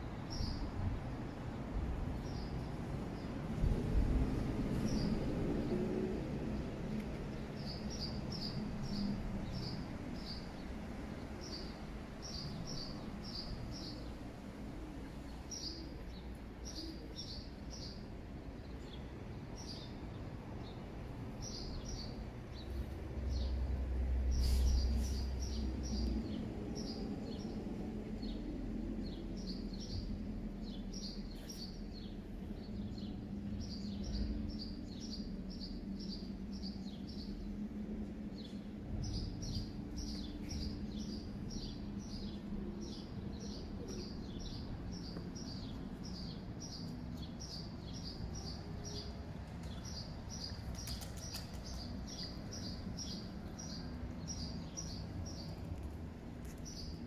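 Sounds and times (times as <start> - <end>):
small birds chirping: 29.0 - 37.5, 38.4 - 57.0.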